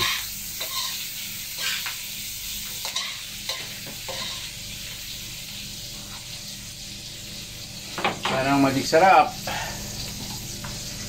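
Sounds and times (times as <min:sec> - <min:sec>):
metal spoon scraping a pan: 0:00.0 - 0:01.0, 0:02.8 - 0:04.5
food sizzling in a wok: 0:00.0 - 0:11.0.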